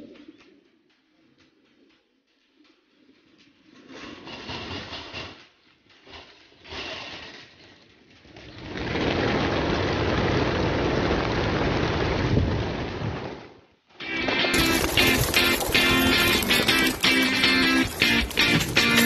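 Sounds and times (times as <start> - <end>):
pigeons wings clattering: 0.0 - 19.0
crate doors rattling: 14.6 - 19.0.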